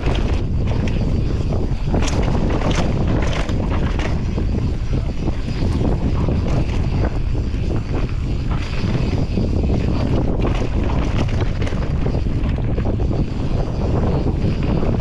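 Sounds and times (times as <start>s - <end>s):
bike rattling and knocking: 0.0s - 15.0s
tyres rumbling on dirt trail: 0.0s - 15.0s
wind buffeting microphone: 0.0s - 15.0s.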